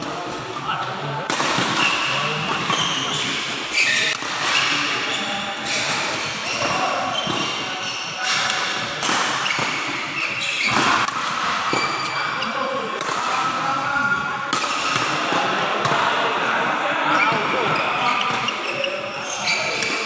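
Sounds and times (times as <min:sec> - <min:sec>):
racquets hitting shuttlecock: 0:05.6 - 0:12.2, 0:13.0 - 0:13.5, 0:14.5 - 0:16.0.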